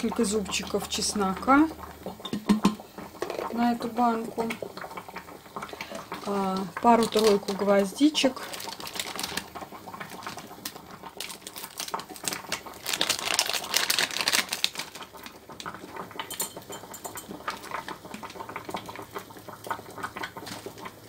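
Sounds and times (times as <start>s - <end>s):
paper packet rustling: 6.5s - 15.7s.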